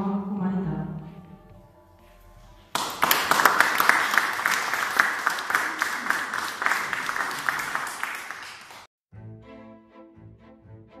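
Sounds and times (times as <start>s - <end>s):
audience applauding: 2.7s - 8.9s.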